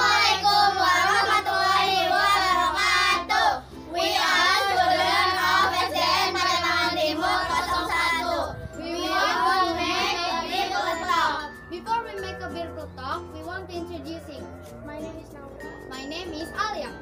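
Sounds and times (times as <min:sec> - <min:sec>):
girls singing in unison: 0:00.0 - 0:11.5
low held accompaniment notes: 0:00.0 - 0:17.0.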